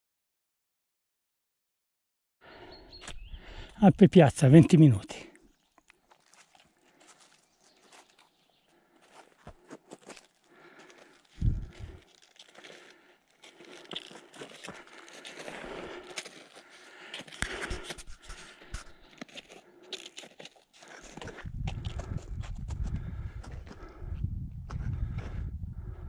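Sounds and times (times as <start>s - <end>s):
crunching footsteps on snow: 5.9s - 24.1s
low rumbling noise: 11.4s - 12.0s.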